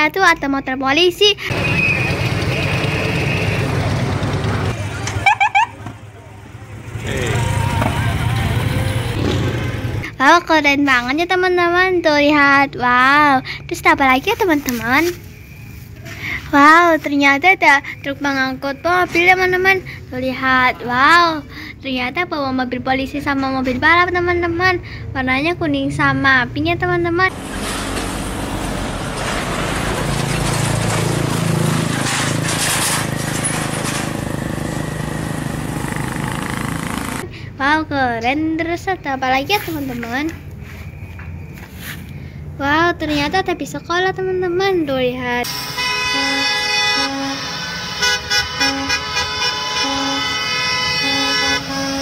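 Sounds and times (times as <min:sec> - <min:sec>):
motorcycle engines: 0:01.4 - 0:10.2, 0:25.7 - 0:37.6
truck engine driving past: 0:01.5 - 0:10.1, 0:27.2 - 0:37.3
bus horn chord held: 0:45.5 - 0:52.0
short horn toots: 0:45.5 - 0:52.0.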